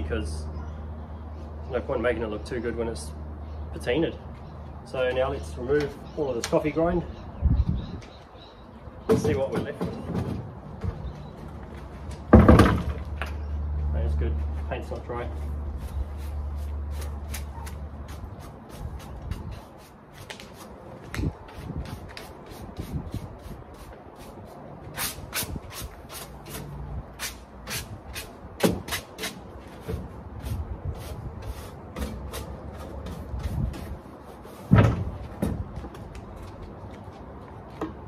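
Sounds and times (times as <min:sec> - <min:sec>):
brush scraping metal grill: 0:21.4 - 0:34.7.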